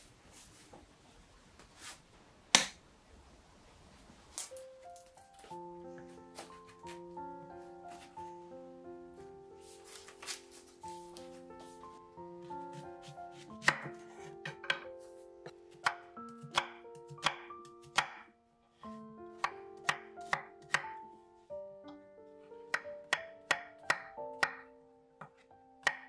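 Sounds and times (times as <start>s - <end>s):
soft background music: 4.3s - 26.0s
knife chopping on wooden board: 12.7s - 14.9s, 15.7s - 18.3s, 19.4s - 21.0s, 25.2s - 26.0s.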